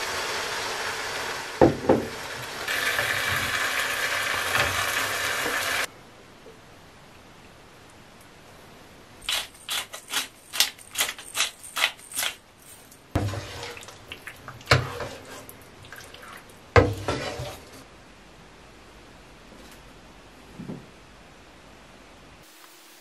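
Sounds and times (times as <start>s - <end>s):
wooden spatula scraping a wok: 13.2s - 13.9s, 14.6s - 15.6s, 16.2s - 17.9s.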